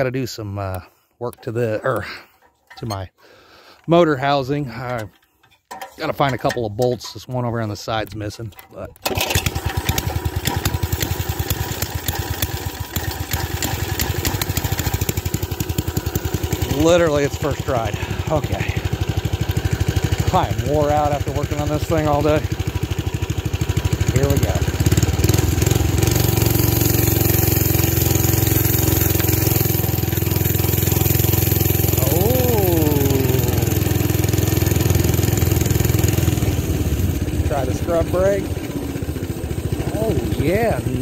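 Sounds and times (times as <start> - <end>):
small engine idling: 9.0 - 41.0.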